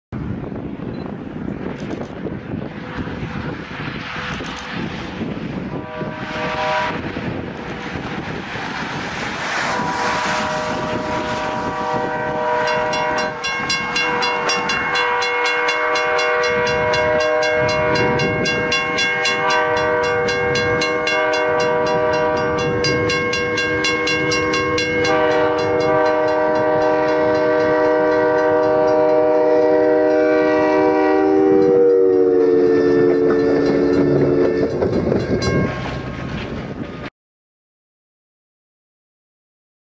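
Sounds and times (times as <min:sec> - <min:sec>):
rumble of passing train: 0:00.2 - 0:37.1
train horn chord: 0:05.7 - 0:07.2, 0:09.5 - 0:36.1
rush of thrown snow: 0:08.6 - 0:11.4
bell clanging rapidly: 0:12.7 - 0:29.2, 0:33.5 - 0:36.0.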